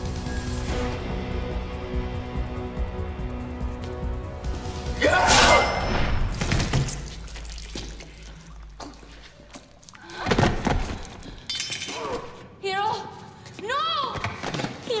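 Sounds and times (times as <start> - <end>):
music: 0.0 - 6.9.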